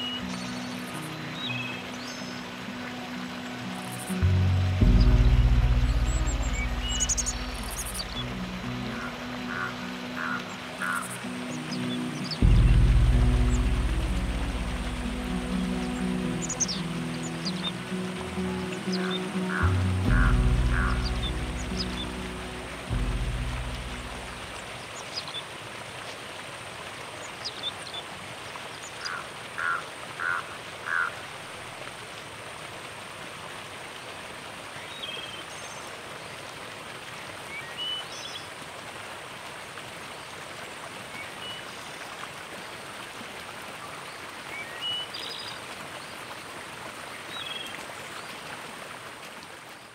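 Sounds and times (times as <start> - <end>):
water rushing: 0.0 - 49.9
high chirping calls: 3.9 - 11.1.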